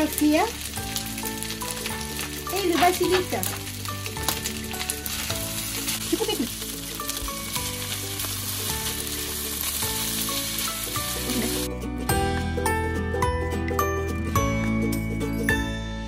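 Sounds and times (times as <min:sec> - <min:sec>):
food sizzling in a frying pan: 0:00.0 - 0:11.7
background music: 0:00.0 - 0:16.0.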